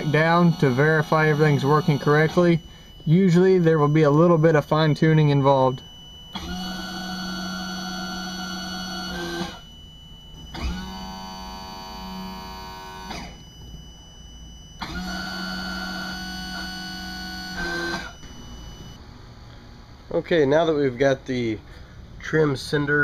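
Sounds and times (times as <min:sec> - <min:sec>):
electric pump motor running: 0:00.0 - 0:13.7, 0:14.6 - 0:19.0.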